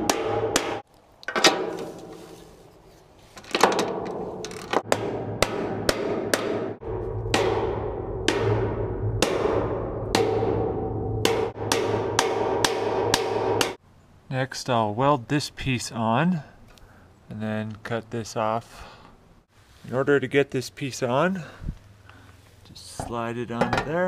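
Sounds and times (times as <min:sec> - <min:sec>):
hammer blows on steel: 0:04.8 - 0:13.8.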